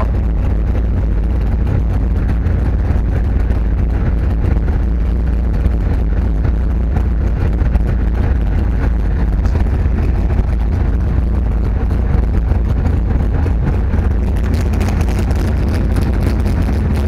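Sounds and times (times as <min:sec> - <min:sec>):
diesel engine rumbling: 0:00.0 - 0:17.0.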